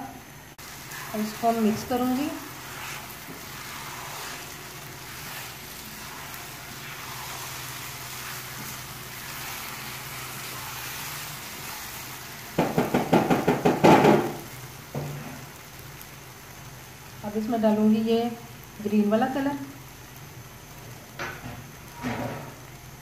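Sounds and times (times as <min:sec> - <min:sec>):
low sizzle: 0:00.0 - 0:23.0
spatula scraping pan: 0:00.6 - 0:13.0
rapid knocks: 0:12.6 - 0:14.2.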